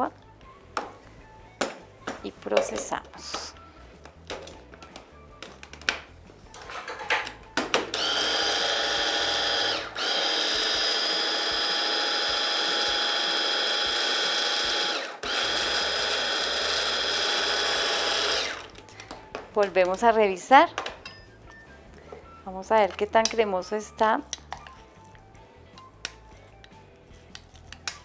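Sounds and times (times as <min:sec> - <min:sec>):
hand blender motor whine: 0:07.9 - 0:18.8.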